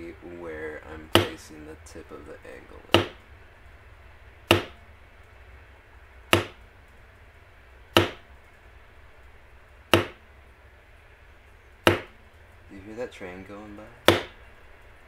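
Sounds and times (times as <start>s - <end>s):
mallet tapping leather tool: 1.1s - 1.3s, 2.9s - 3.2s, 4.5s - 4.8s, 6.3s - 6.6s, 8.0s - 8.2s, 9.9s - 10.2s, 11.8s - 12.2s, 14.0s - 14.4s.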